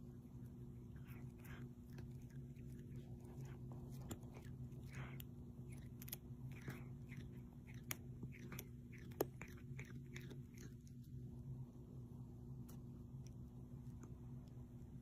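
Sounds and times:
cat licking and chewing: 0:00.0 - 0:11.3.

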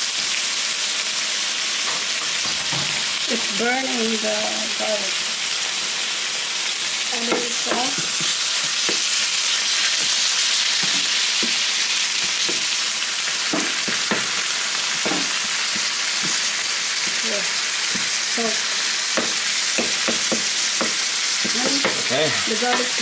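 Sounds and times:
meat sizzling in a frying pan: 0:00.0 - 0:23.0
utensil scraping a pan: 0:07.2 - 0:17.3.

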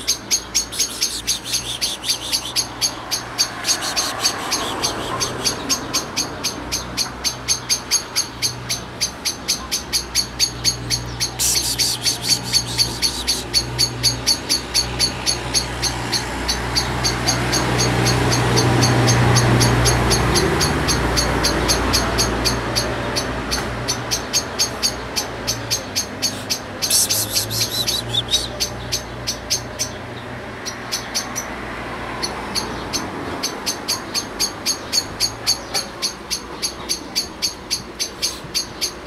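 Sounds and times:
high repeated animal chirping: 0:00.0 - 0:06.4, 0:07.2 - 0:16.0, 0:24.4 - 0:29.4.

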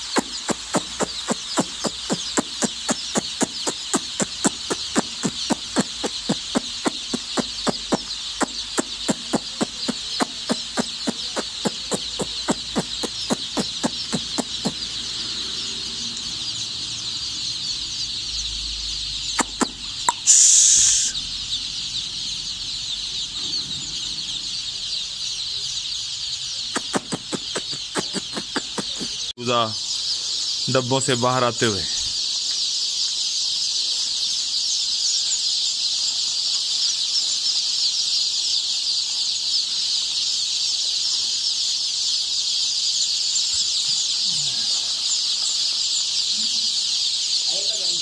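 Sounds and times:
regular ticking: 0:00.0 - 0:15.0, 0:19.4 - 0:21.1, 0:26.7 - 0:29.3
chicks peeping: 0:00.0 - 0:48.0
loud hiss: 0:19.4 - 0:21.2.

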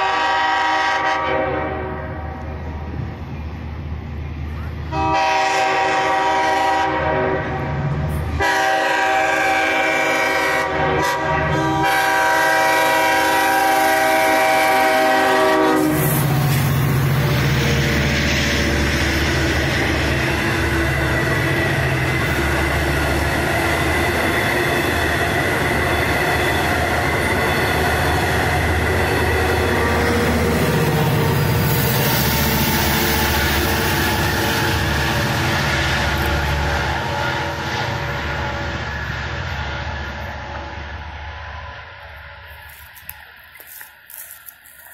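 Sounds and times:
locomotive horn blasts: 0:00.0 - 0:02.4, 0:04.9 - 0:16.5
train rumbling past: 0:00.0 - 0:44.9.

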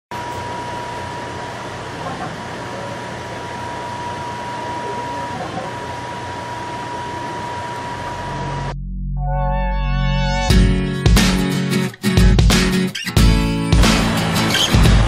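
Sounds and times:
thin steady whine: 0:00.1 - 0:08.8.

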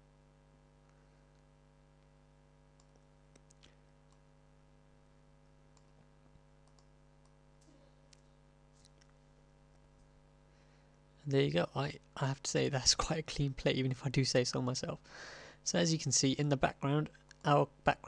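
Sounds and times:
low electrical hum: 0:00.0 - 0:18.0
computer mouse clicks: 0:02.8 - 0:04.2, 0:06.6 - 0:09.2.

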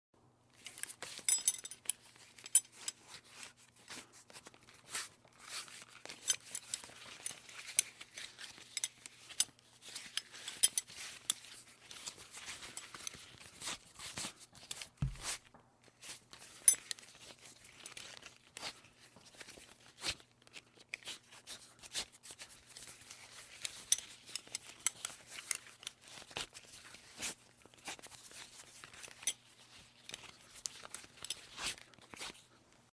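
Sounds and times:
metal buckle clicking and clinking: 0:00.6 - 0:03.0, 0:06.0 - 0:13.3, 0:22.8 - 0:26.5.

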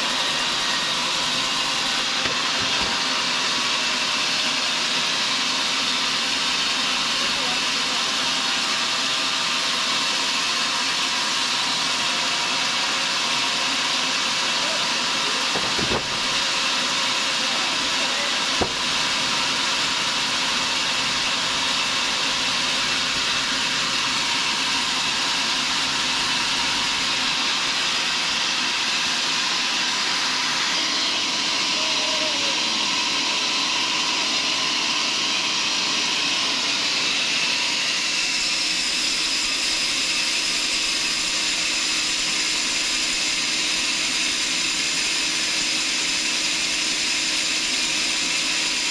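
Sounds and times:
band sawmill humming: 0:00.0 - 0:48.9
sharp knock: 0:18.6 - 0:18.8.

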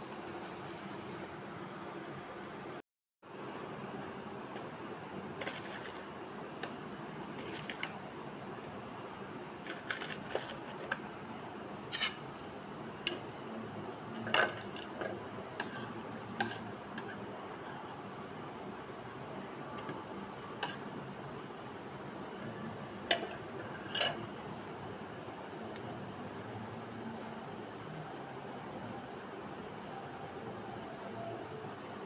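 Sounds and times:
steel spoon scraping a saucepan: 0:11.8 - 0:12.3, 0:15.6 - 0:18.0, 0:20.6 - 0:20.9, 0:23.1 - 0:24.2.

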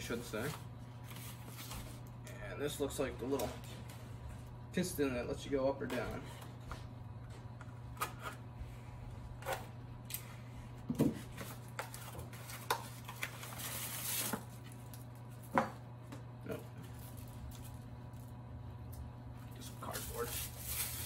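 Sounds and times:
low steady hum: 0:00.0 - 0:21.0
plastic bag crinkling: 0:20.1 - 0:21.0.

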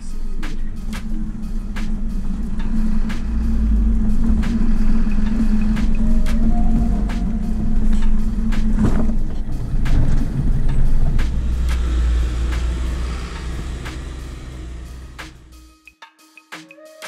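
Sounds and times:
road rumble: 0:00.0 - 0:15.7
vehicle engine hum: 0:00.0 - 0:15.7
knocks and rattles: 0:00.4 - 0:12.9.

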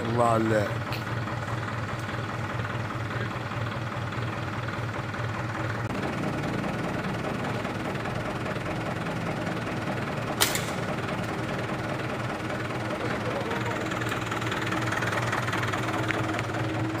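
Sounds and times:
steady engine drone: 0:00.0 - 0:17.0
air rifle shot: 0:10.4 - 0:10.8.

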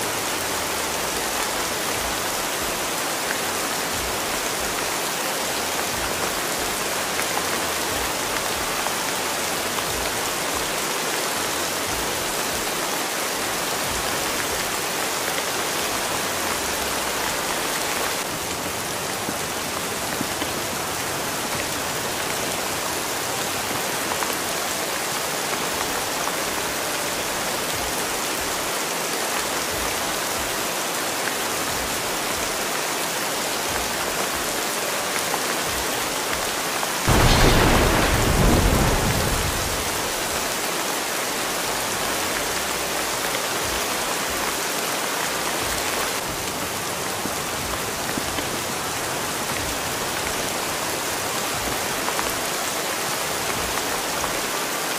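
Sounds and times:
steady rain falling: 0:00.0 - 0:54.9
thunder clap rumbling: 0:37.1 - 0:40.3.

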